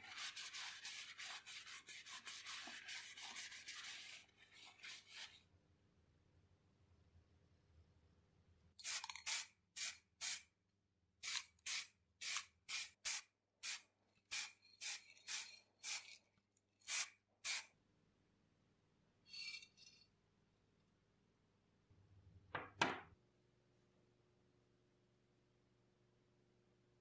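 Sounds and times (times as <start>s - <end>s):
spray can hissing: 8.8s - 10.4s, 11.2s - 16.2s, 16.9s - 17.7s.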